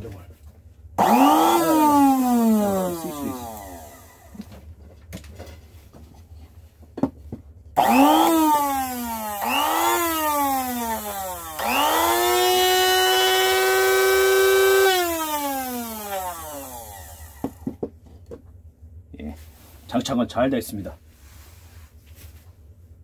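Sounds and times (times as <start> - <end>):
blender motor whining: 1.0 - 4.5, 7.8 - 17.6.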